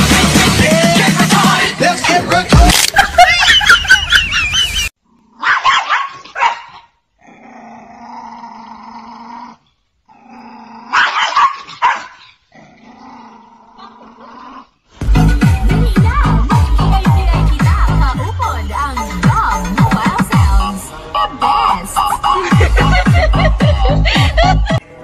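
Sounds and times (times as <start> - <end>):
music: 0.0 - 2.8, 15.0 - 25.0
dog barking: 5.4 - 7.0, 10.9 - 12.4
dog growling: 7.2 - 11.2, 12.5 - 14.8.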